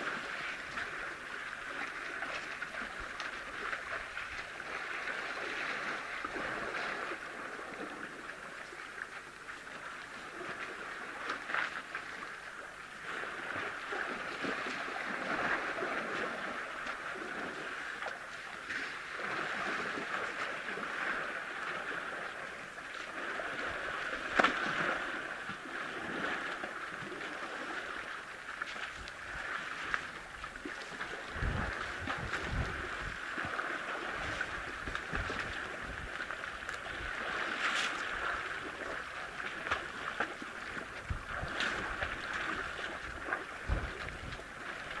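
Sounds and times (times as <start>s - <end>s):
elephants splashing in water: 9.8s - 45.0s.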